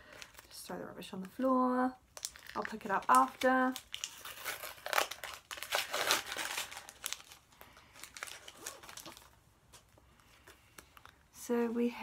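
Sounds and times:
wrapper tearing and crinkling: 0:02.1 - 0:09.4.

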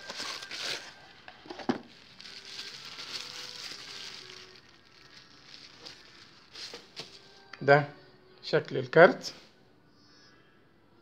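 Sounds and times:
bubble wrap crackling: 0:00.0 - 0:07.4.

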